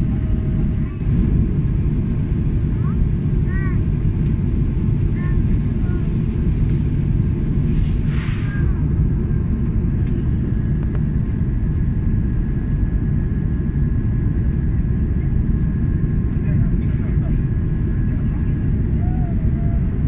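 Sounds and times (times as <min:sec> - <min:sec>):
jet engine cabin rumble: 0:00.0 - 0:20.0.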